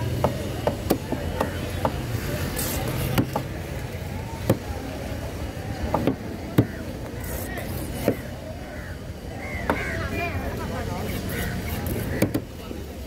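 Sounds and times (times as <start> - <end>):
knife chopping fish on board: 12.2 - 12.5.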